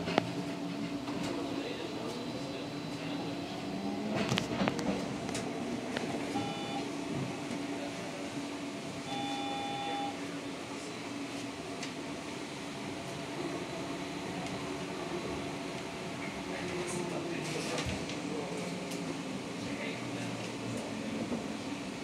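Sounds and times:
short electronic beeps: 0:06.3 - 0:06.8, 0:09.1 - 0:10.2.

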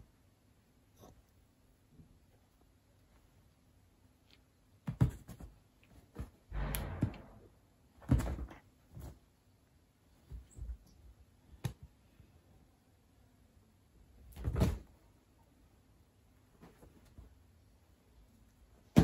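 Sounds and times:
bedding rustling: 0:16.4 - 0:19.0.

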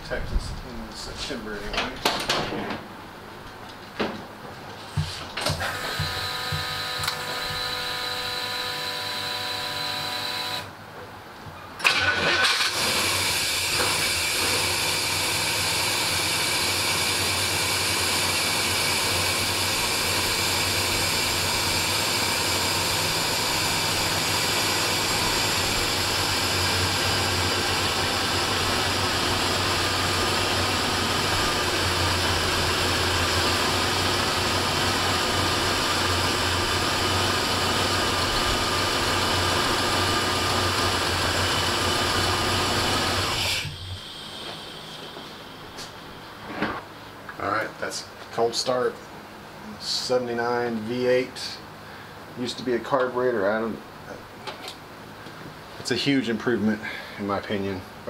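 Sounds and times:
fuel pump priming whine: 0:04.9 - 0:10.7, 0:11.8 - 0:46.5
engine cranking and starting: 0:11.8 - 0:27.3.

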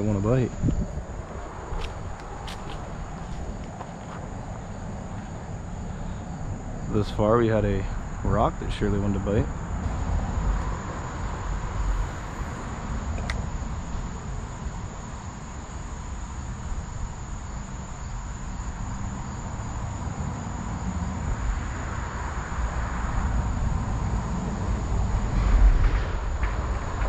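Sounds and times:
low rumble: 0:00.0 - 0:15.6
insects droning: 0:00.0 - 0:27.0.

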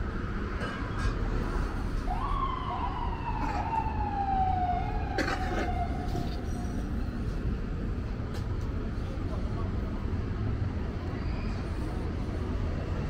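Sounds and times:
street traffic noise: 0:00.0 - 0:13.0
emergency siren wail: 0:01.8 - 0:07.0.

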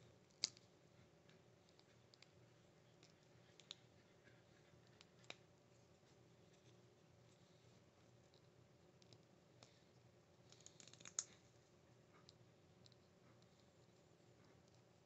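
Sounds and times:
small plastic parts clicking: 0:10.5 - 0:11.4.

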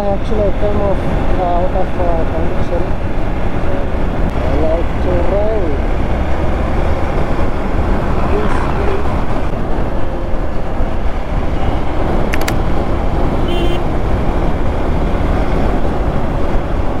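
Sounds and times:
motorcycle engine: 0:00.0 - 0:17.0
wind and road noise: 0:00.0 - 0:17.0
sharp clicks: 0:12.3 - 0:12.6
vehicle horn beep: 0:13.4 - 0:13.9.

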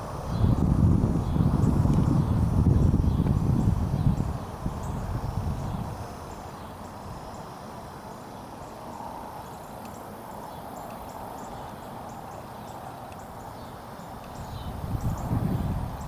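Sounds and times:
wind rumble on microphone: 0:00.0 - 0:07.3, 0:14.3 - 0:16.0
faint high ticks: 0:09.7 - 0:10.1, 0:13.0 - 0:13.3, 0:14.2 - 0:14.4.

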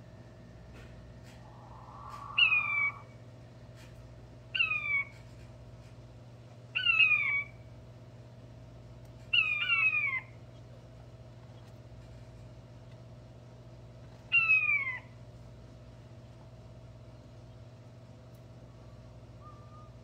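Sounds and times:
quail crowing whistled notes: 0:01.4 - 0:03.2, 0:19.4 - 0:20.0.

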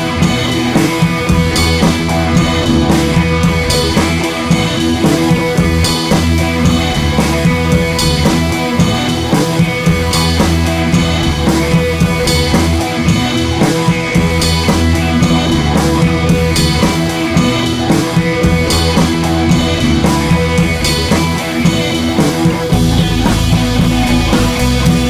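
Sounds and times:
rock music with drums and guitar: 0:00.0 - 0:25.0.

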